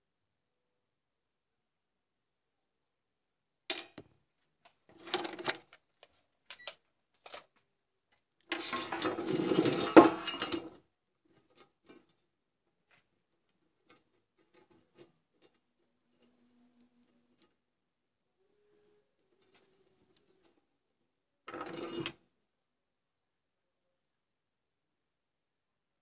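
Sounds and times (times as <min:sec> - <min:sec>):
clattering rustle: 0:08.5 - 0:16.5, 0:21.5 - 0:22.2.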